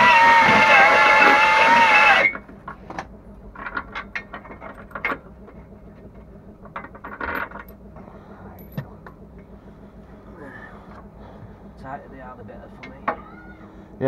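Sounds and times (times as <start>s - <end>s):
power tool motor whine: 0.0s - 2.6s.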